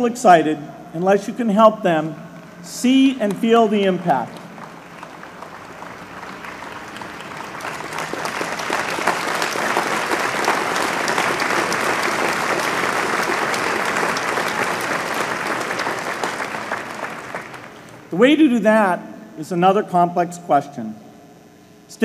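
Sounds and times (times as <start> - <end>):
audience applauding: 4.2 - 18.1.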